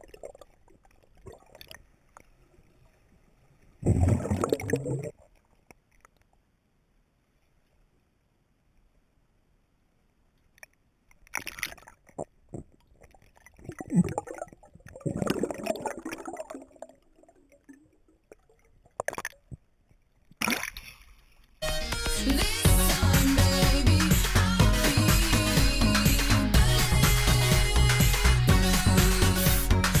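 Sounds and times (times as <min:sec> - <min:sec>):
muffled underwater bubbling: 0:03.8 - 0:05.3, 0:11.6 - 0:19.6.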